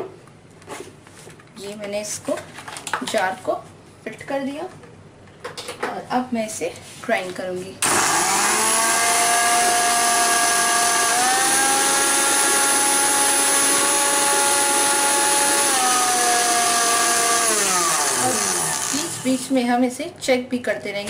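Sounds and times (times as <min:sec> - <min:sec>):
mixer grinder motor whining: 0:07.8 - 0:19.5.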